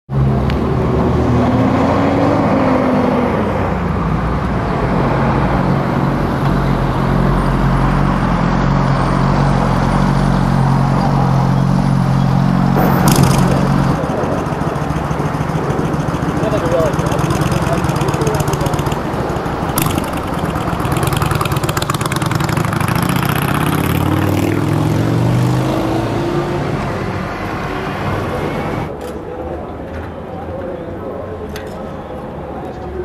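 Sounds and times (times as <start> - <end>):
street traffic noise: 0.1 - 33.0
vehicle engine running: 3.7 - 25.7
sharp noise: 12.7 - 22.7.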